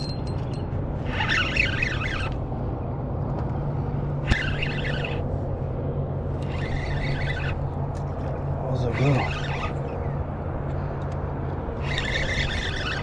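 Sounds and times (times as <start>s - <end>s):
spinning reel cranking: 0.0s - 2.4s, 4.2s - 5.2s, 6.4s - 7.7s, 8.8s - 9.8s, 11.8s - 13.0s
low motor hum: 0.0s - 13.0s.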